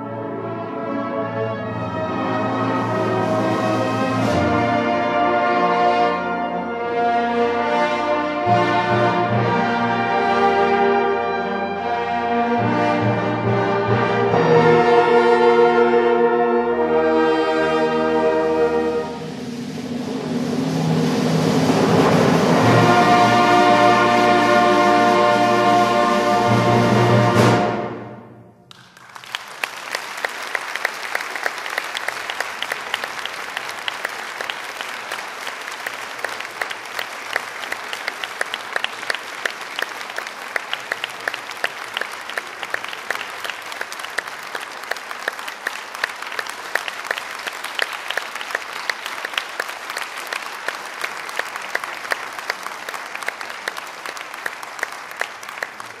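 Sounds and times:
audience applause: 28.7 - 56.0.

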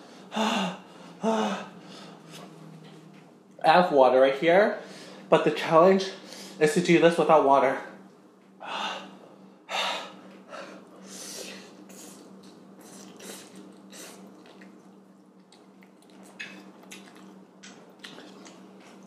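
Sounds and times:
low steady hum: 0.0 - 19.0
person slurping and chewing noodles: 11.7 - 19.0.

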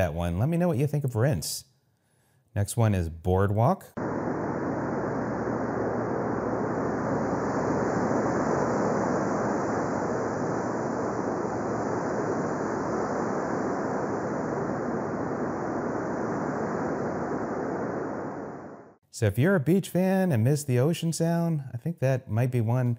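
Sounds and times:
ocean surf rushing: 4.0 - 19.0.

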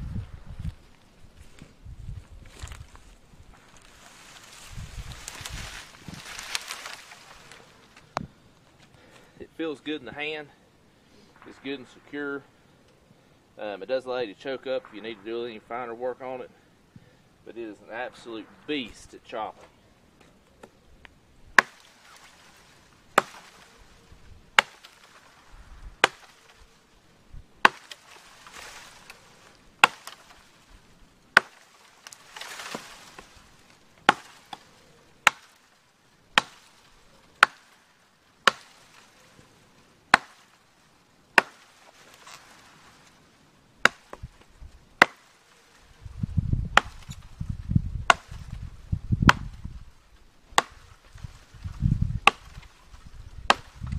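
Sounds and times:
blade chopping into wood: 21.6 - 21.9, 23.2 - 23.6, 24.6 - 25.1, 26.0 - 26.4, 27.6 - 29.2, 29.8 - 30.3, 31.4 - 31.7, 34.0 - 34.6, 35.2 - 35.5, 36.4 - 36.7, 37.4 - 37.7, 40.1 - 40.4, 41.4 - 41.6, 43.8 - 44.3, 45.0 - 45.3, 46.7 - 47.2, 48.0 - 48.5, 49.2 - 49.6, 50.6 - 50.9, 52.2 - 52.6, 53.4 - 53.9.

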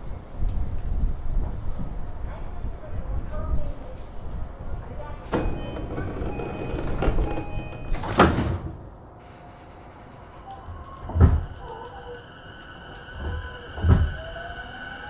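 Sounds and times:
platform noise: 5.3 - 8.2
train doors closing knock: 5.3 - 8.8, 11.0 - 11.8, 13.2 - 14.2.

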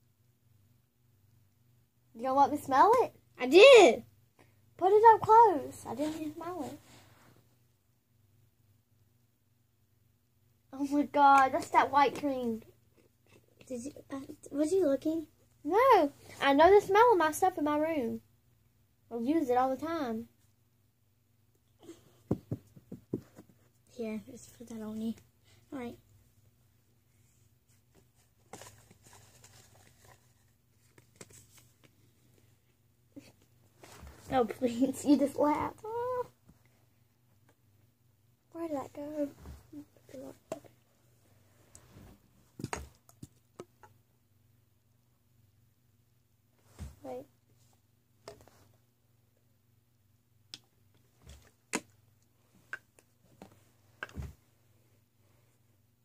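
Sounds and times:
low room hum: 0.0 - 56.0
faint rustling of hands: 5.9 - 7.5, 27.0 - 34.6
dull thumps: 22.2 - 23.6.

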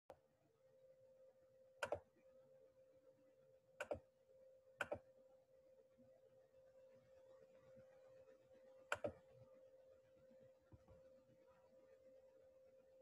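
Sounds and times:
faint steady hum: 0.1 - 13.0
computer mouse clicks: 1.8 - 2.1, 3.8 - 4.1, 4.8 - 5.1, 8.9 - 9.2.

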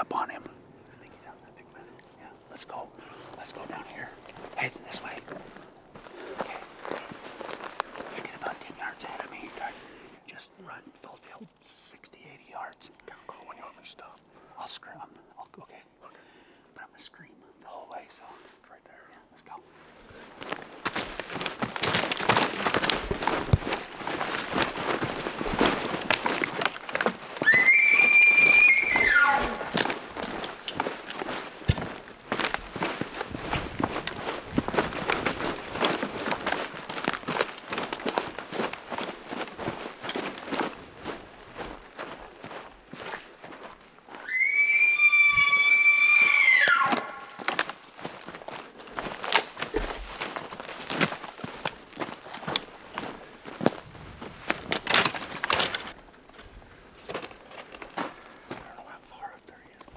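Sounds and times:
footsteps crashing through brush: 4.3 - 8.2, 20.2 - 44.2, 46.3 - 58.6
pack gear rustling: 19.8 - 44.0, 47.0 - 58.6
branches snapping: 20.4 - 42.1, 46.8 - 58.1
elk bugling: 26.1 - 30.8, 44.2 - 47.5.

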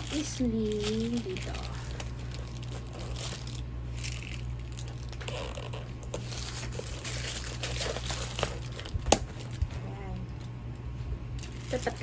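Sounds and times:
plastic wrap rustling and crinkling: 0.0 - 10.2, 11.4 - 12.0.

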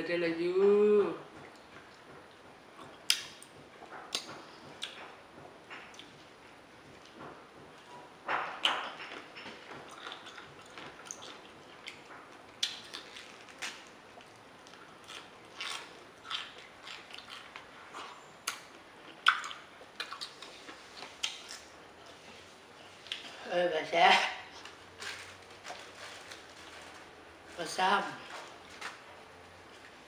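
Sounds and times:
wet chewing clicks and squishes: 8.6 - 22.2.

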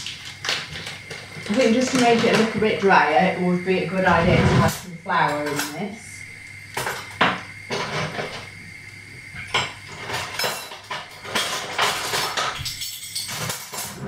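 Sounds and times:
food sizzling in a pan: 0.0 - 12.4
utensils clinking and knocking: 4.1 - 5.9, 9.4 - 14.0.

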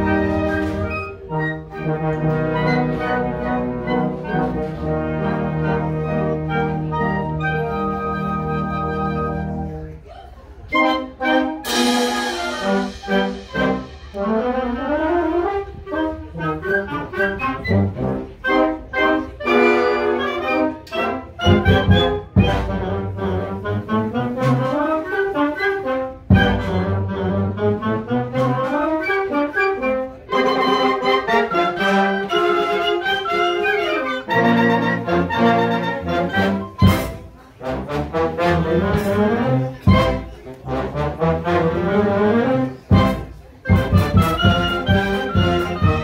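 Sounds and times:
concert band playing: 0.0 - 9.8, 10.8 - 46.0
heavy low drum beats: 39.9 - 40.3, 42.9 - 46.0.

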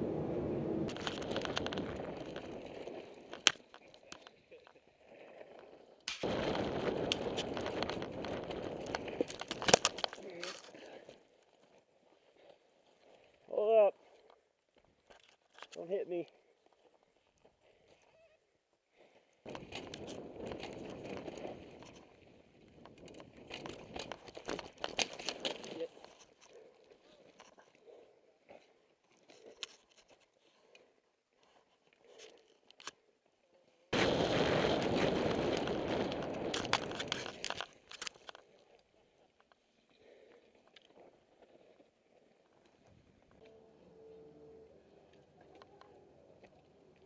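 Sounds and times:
bike tyres crunching on gravel: 0.1 - 13.5, 19.5 - 26.4, 33.9 - 43.2.

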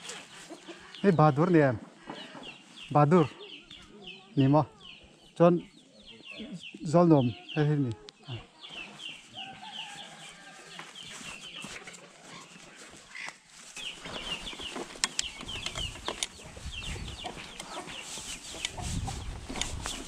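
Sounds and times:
chickens clucking: 0.0 - 10.0, 10.8 - 20.0
sharp clicks: 15.0 - 16.4.

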